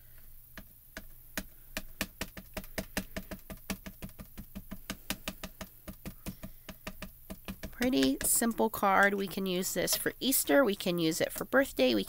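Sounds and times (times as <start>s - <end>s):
ink pad tapping on stamp: 0.6s - 10.6s.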